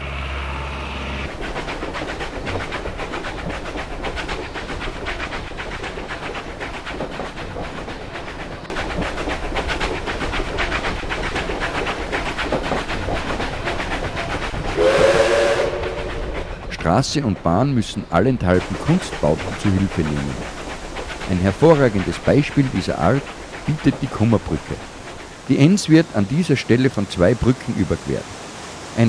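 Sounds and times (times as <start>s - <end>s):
steam train on rails: 0.0s - 29.0s.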